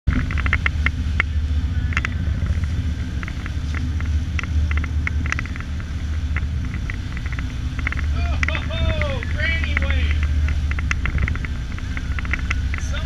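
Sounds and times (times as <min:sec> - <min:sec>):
motorboat engine rumbling: 0:00.0 - 0:13.0
light irregular clicks and taps: 0:00.1 - 0:13.0.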